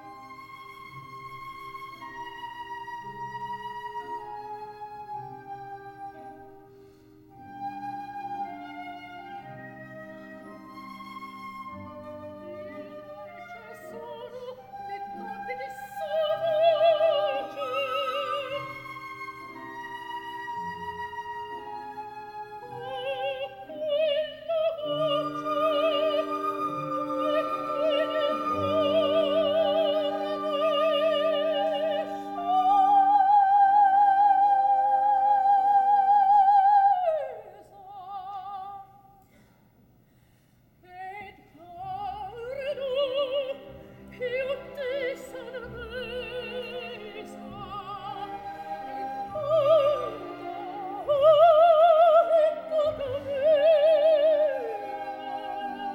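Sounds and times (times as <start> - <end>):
operatic soprano singing: 7.8 - 39.1, 40.8 - 55.9.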